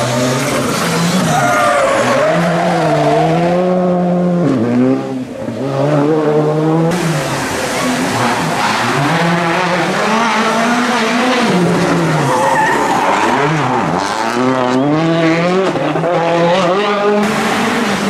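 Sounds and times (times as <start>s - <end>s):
rally car engine revving: 0.0s - 18.0s
tyres squealing: 12.2s - 13.4s.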